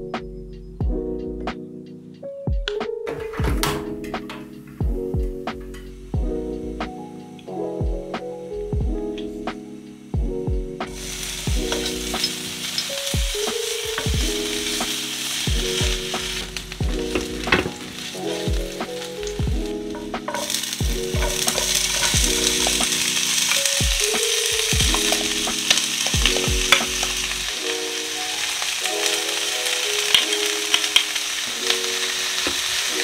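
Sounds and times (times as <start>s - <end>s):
garlic sizzling in hot oil: 10.9s - 33.0s.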